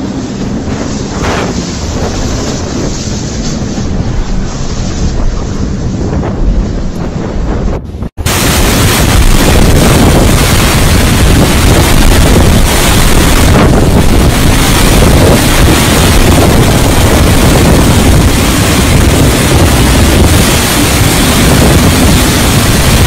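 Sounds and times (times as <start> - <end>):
strong wind blasting microphone: 0.0 - 23.0.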